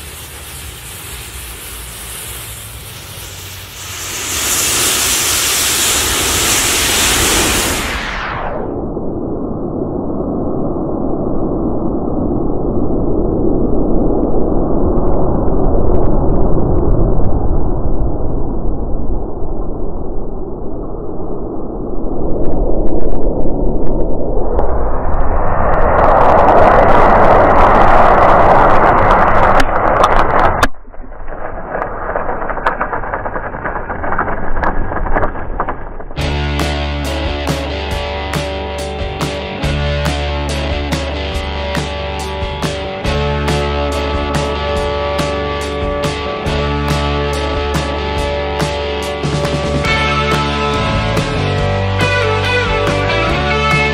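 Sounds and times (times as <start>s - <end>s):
matches burning with crackles: 0.0s - 7.8s
sharp crackling pops: 0.0s - 8.2s, 28.6s - 40.3s
muffled rushing of burning matches: 0.0s - 8.3s, 27.1s - 39.4s
rock guitar music: 36.2s - 53.9s.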